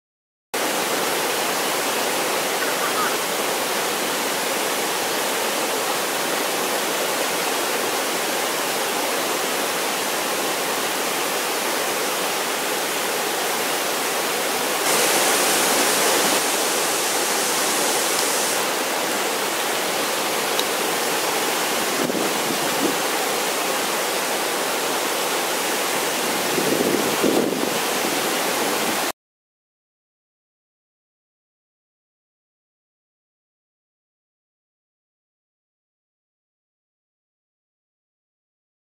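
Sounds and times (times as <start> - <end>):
waterfall rushing: 0.6 - 29.1.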